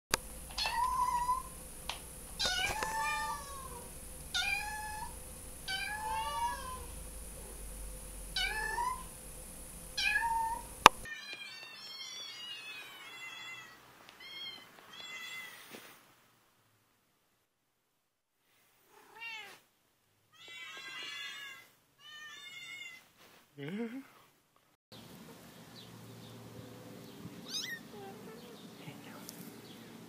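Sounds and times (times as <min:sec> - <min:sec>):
kitten meowing: 0:00.6 - 0:01.5, 0:02.4 - 0:05.1, 0:05.7 - 0:06.9, 0:08.4 - 0:09.1, 0:10.0 - 0:15.6, 0:27.4 - 0:28.0.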